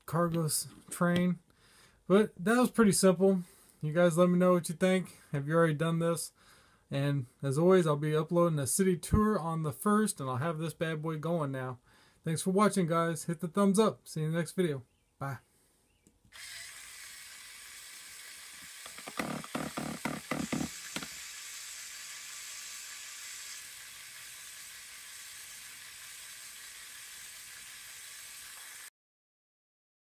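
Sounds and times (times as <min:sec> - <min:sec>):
small motor whirring: 0:16.3 - 0:28.9
plastic clicks and clacks: 0:18.8 - 0:21.1.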